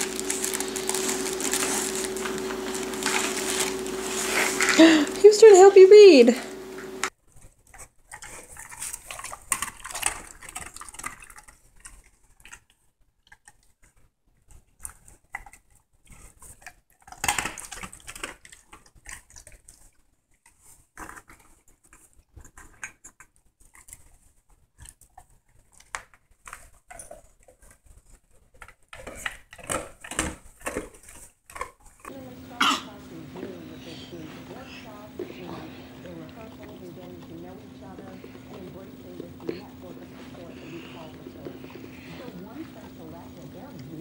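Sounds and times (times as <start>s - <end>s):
dog sniffing and licking: 26.5s - 44.0s.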